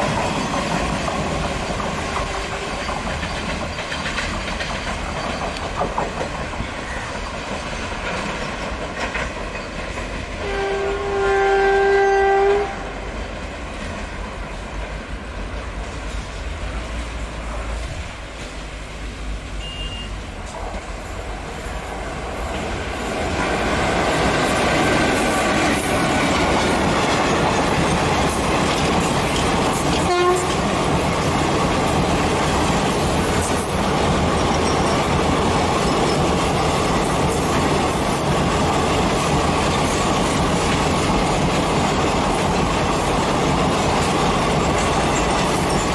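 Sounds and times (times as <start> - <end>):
train wheels rumbling over rails: 0.0 - 45.9
train horn blast: 2.1 - 2.9, 10.4 - 13.0, 29.9 - 30.6.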